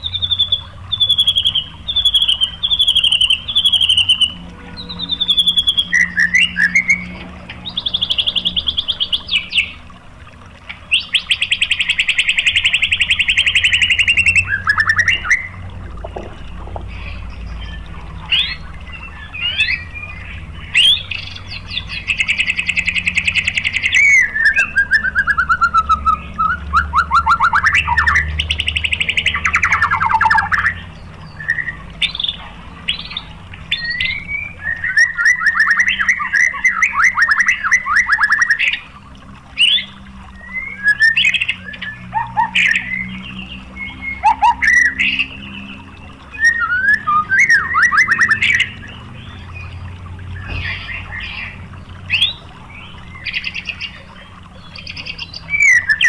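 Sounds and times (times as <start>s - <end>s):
bird singing buzzy trills: 0.0s - 56.0s
bird whistles: 46.4s - 48.8s.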